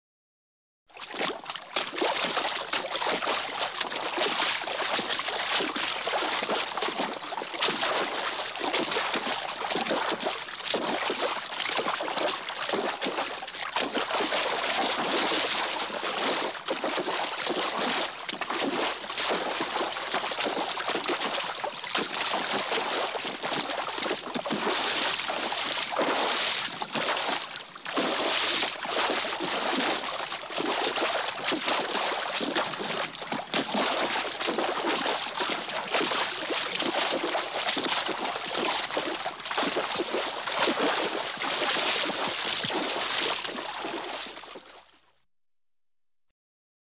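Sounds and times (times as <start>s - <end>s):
animal splashing in water: 1.0s - 44.8s.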